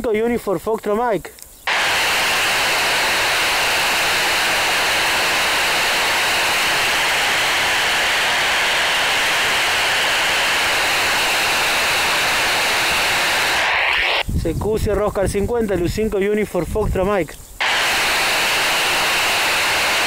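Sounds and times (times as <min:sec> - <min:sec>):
radio static hissing: 0:01.6 - 0:14.2, 0:17.6 - 0:20.0.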